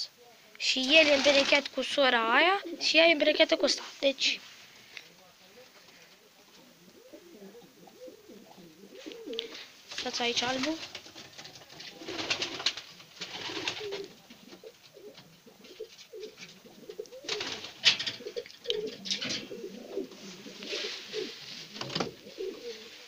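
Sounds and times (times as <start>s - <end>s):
pigeons cooing: 2.5s - 3.4s, 5.8s - 23.0s.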